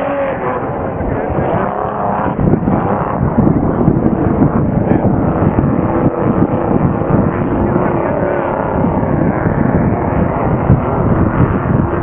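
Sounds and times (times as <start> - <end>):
hydroplane engines droning: 0.0 - 12.0.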